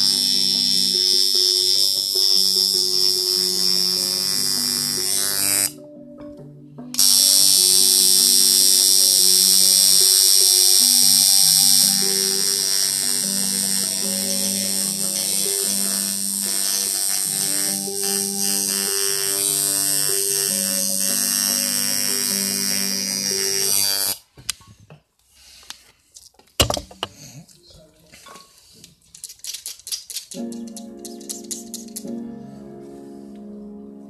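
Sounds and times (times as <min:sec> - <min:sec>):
tattoo machine buzzing: 0:00.0 - 0:05.8, 0:07.0 - 0:24.2
background music: 0:00.0 - 0:24.0, 0:30.1 - 0:34.0.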